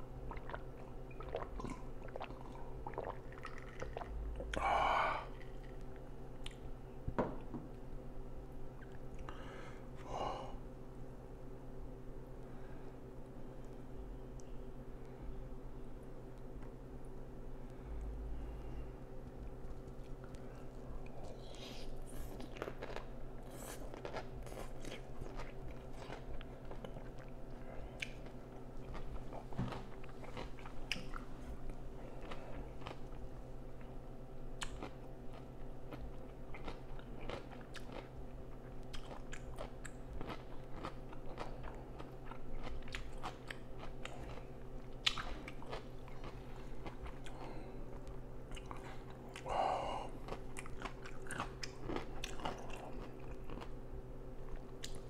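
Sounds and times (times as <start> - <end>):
steady low hum: 0.0 - 55.0
chewing mouth clicks and smacks: 5.8 - 6.7, 34.6 - 49.4, 54.5 - 55.0.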